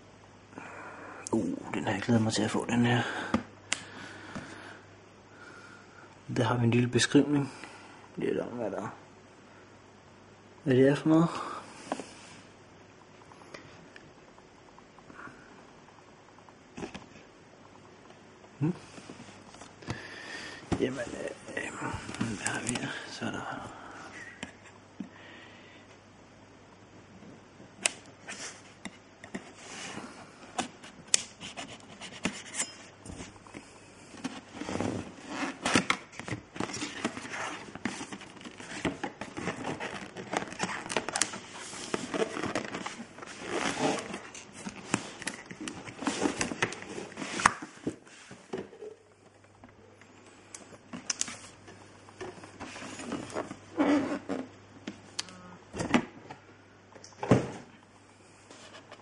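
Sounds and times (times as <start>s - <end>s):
cardboard scrapes and rustles: 36.6s - 45.2s.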